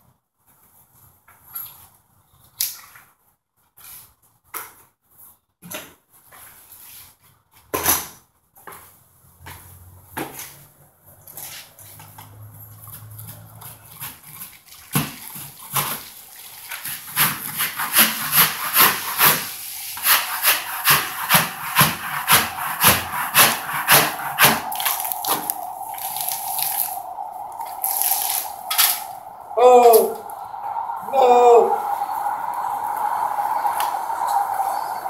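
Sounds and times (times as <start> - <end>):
scraper scraping ceiling: 12.6 - 27.0
steady tone: 20.6 - 35.0.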